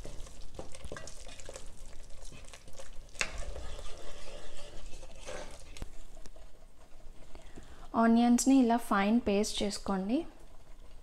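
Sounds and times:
spatula scraping pot: 0.0s - 7.6s
sauce sizzling softly: 0.0s - 11.0s.

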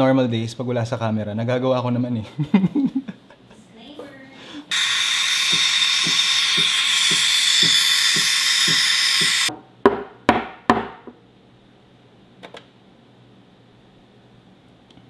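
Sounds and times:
steam wand hissing into milk: 4.7s - 9.5s.

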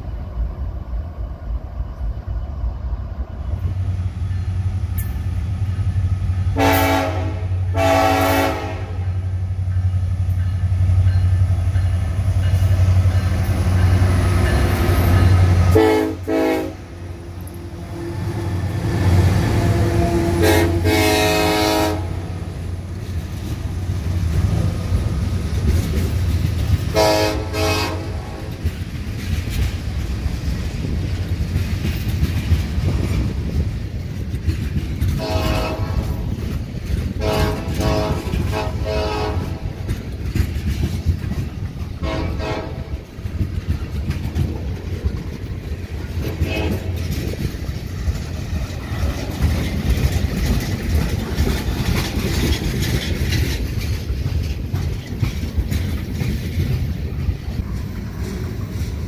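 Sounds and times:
freight train rumble and wheel clatter: 0.0s - 59.0s
locomotive horn blasts: 6.6s - 9.2s, 15.7s - 17.0s, 19.6s - 22.4s, 26.9s - 28.5s, 35.2s - 36.2s, 37.2s - 39.7s, 42.0s - 43.0s, 46.2s - 47.0s.

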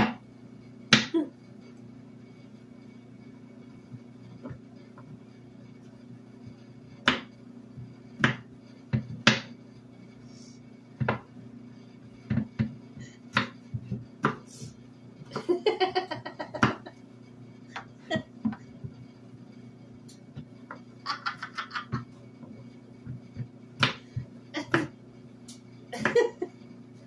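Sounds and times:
low hum: 0.0s - 27.0s
knife chopping on wooden board: 7.0s - 7.3s, 8.2s - 9.5s, 14.2s - 14.4s.

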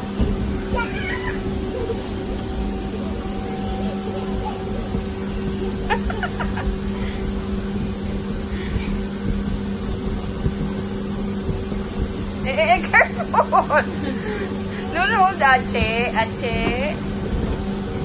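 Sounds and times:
low rumble: 0.0s - 18.0s
machine hum: 0.0s - 18.0s
child's high-pitched cry: 0.7s - 1.4s.

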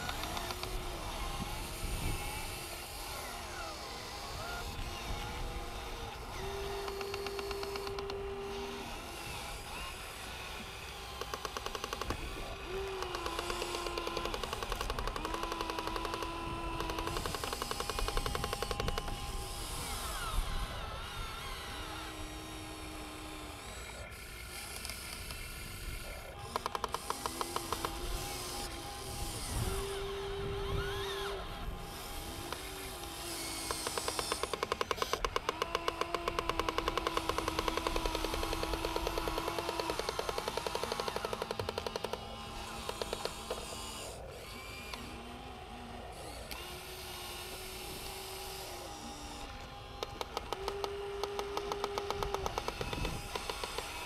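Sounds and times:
electric motors whining: 0.0s - 54.0s
rapid even clicking: 10.9s - 20.5s, 24.5s - 30.1s, 30.7s - 43.8s, 49.4s - 54.0s.

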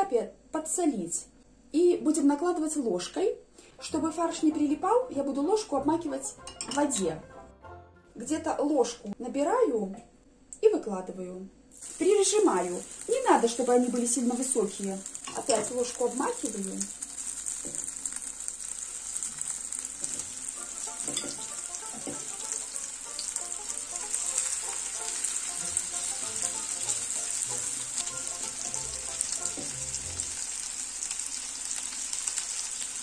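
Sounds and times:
chicken sizzling in hot oil: 11.7s - 33.0s.

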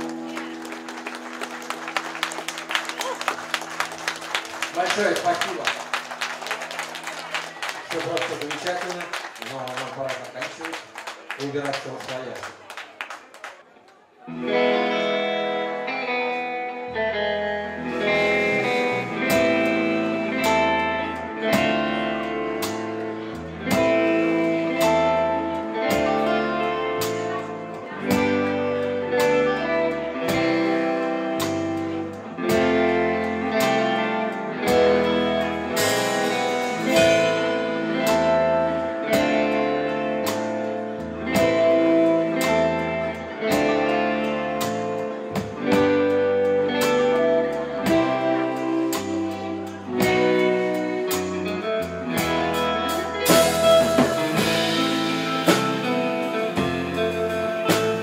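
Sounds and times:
electric lead guitar melody: 0.0s - 9.3s, 14.3s - 58.0s
electric bass line: 14.4s - 58.0s
drum kit beat: 17.9s - 58.0s.

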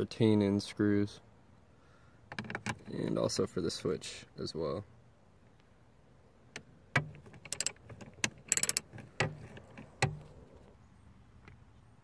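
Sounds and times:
socket wrench clicking: 6.6s - 10.5s.

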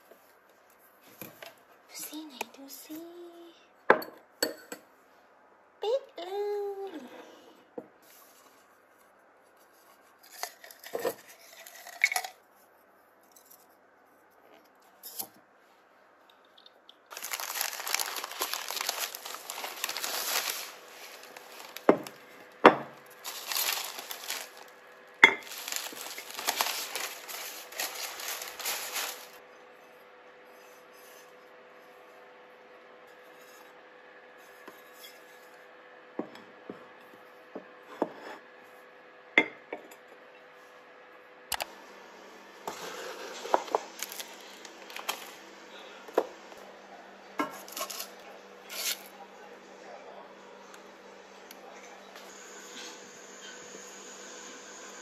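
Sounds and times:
bubble wrap crinkling and tearing: 17.1s - 29.4s, 43.4s - 45.4s, 47.6s - 49.1s.

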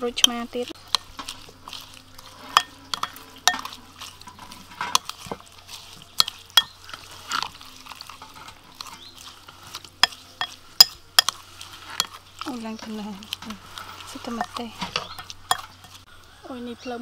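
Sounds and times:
spoon stirring wet mix: 0.0s - 16.1s
spoon clinking against glass: 2.5s - 7.0s, 10.0s - 11.4s, 14.3s - 16.0s.

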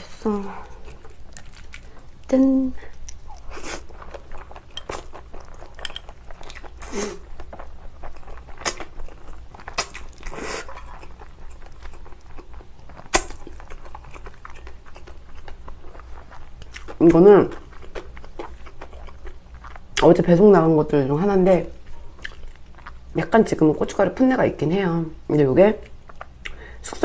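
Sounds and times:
crunchy chewing: 0.0s - 2.3s, 2.9s - 20.1s, 21.9s - 23.1s.

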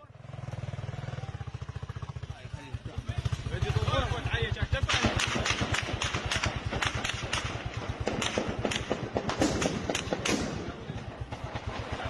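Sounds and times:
low steady throb: 0.1s - 12.0s
gunshots: 4.7s - 12.0s.

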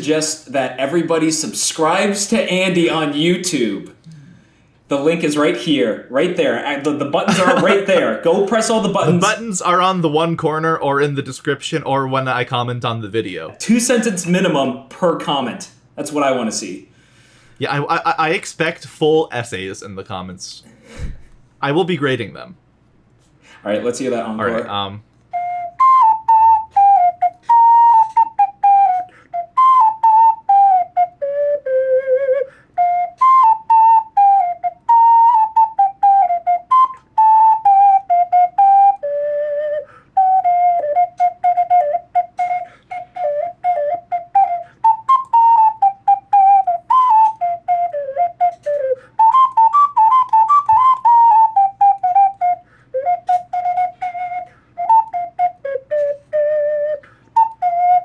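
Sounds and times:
ocarina melody: 7.2s - 14.7s, 24.1s - 58.0s.

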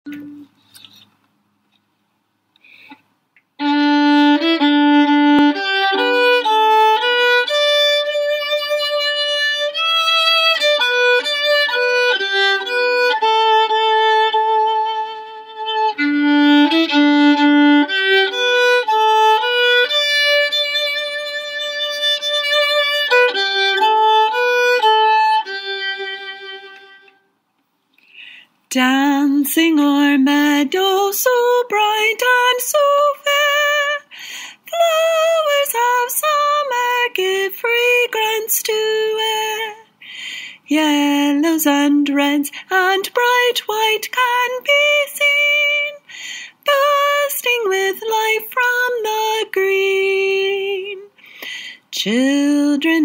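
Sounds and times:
solo violin melody: 3.6s - 27.3s, 30.1s - 34.1s, 34.7s - 39.9s, 42.2s - 51.1s.

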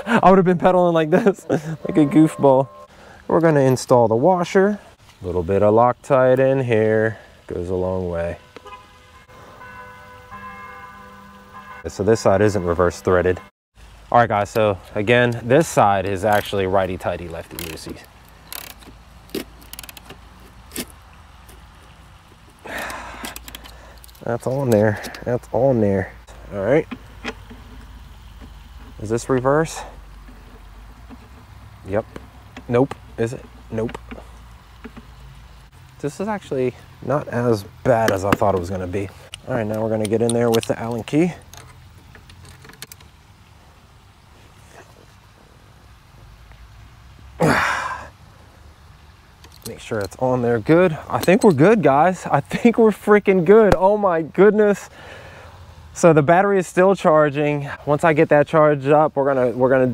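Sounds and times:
sharp metal clicks: 14.5s - 21.6s, 22.8s - 25.3s, 39.3s - 43.2s.

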